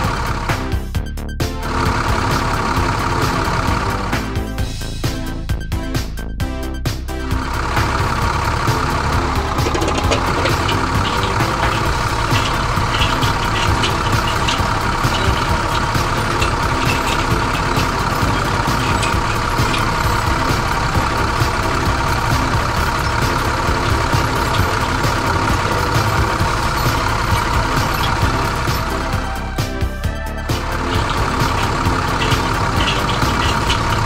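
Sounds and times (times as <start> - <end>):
tractor engine running: 0.0 - 34.0
rapid ticking: 7.4 - 29.4, 30.6 - 34.0.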